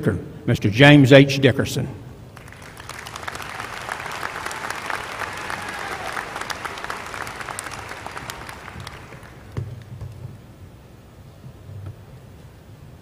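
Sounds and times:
audience applauding: 2.4 - 9.9.

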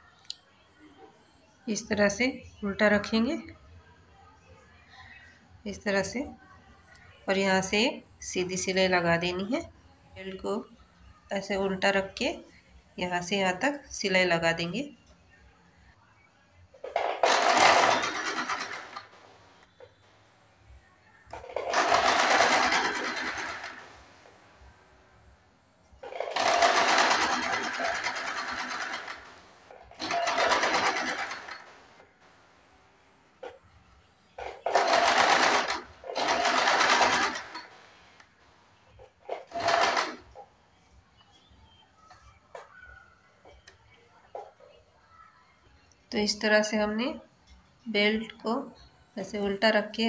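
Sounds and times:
sewing machine stitching: 16.9 - 20.0, 21.3 - 24.1, 26.0 - 32.1, 34.4 - 38.1, 39.3 - 40.4.

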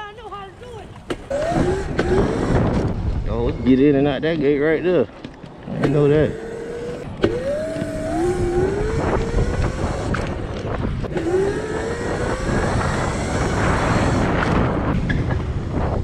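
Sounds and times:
wind noise on microphone: 0.0 - 16.0
electric motor whining: 1.3 - 3.1, 5.6 - 15.0.

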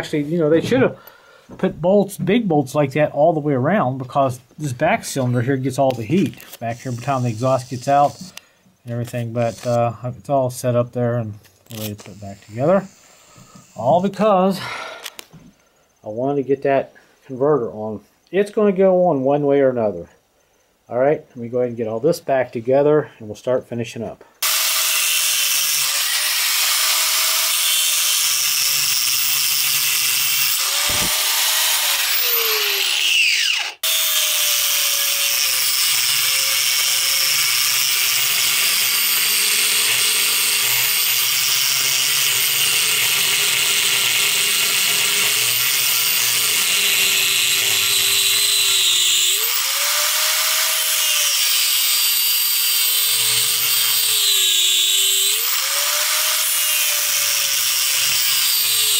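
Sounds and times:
angle grinder cutting metal: 5.3 - 8.4, 9.0 - 9.8, 11.7 - 15.2, 24.4 - 58.9.

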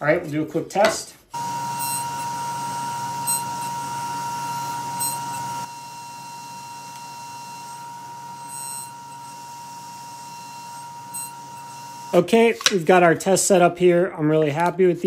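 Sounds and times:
table saw whining: 1.4 - 12.3.

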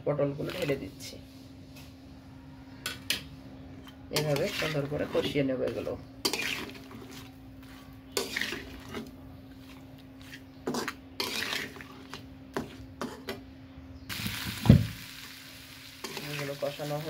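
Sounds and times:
metal spatula scraping a pan: 3.8 - 13.3.

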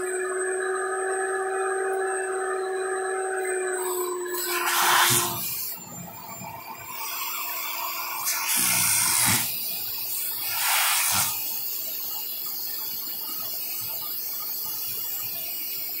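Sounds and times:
vacuum cleaner running: 0.0 - 11.7.

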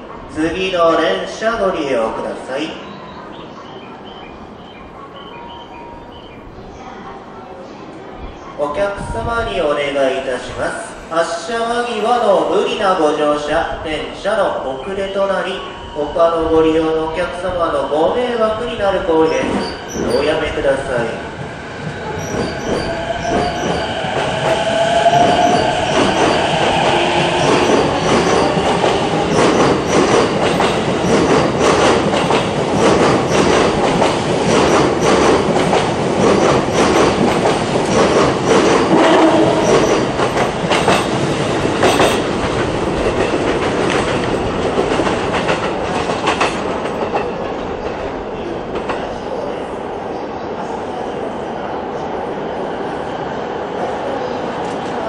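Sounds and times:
train wheel squeal: 19.3 - 20.3, 22.0 - 28.7
train wheels clicking over rail joints: 22.2 - 48.0.

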